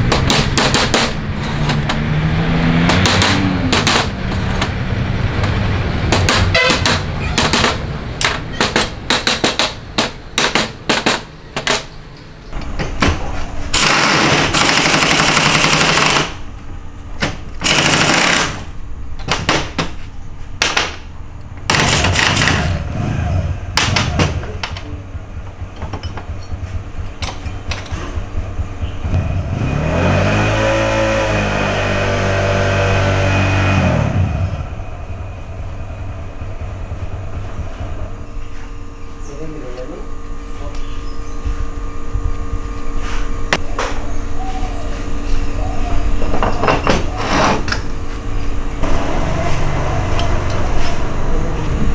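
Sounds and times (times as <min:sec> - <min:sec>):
loud rattling bursts: 0:02.8 - 0:11.9, 0:13.7 - 0:16.5, 0:17.6 - 0:19.8, 0:21.6 - 0:22.9.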